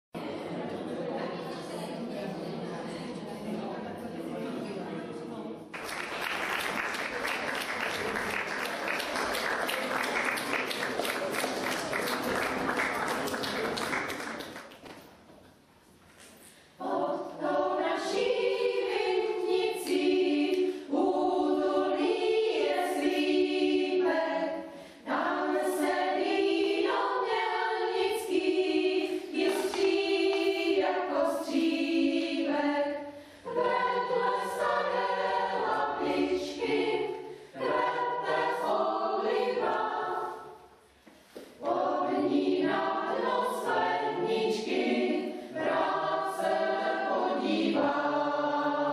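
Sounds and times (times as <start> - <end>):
choir singing in parts: 16.6 - 48.9.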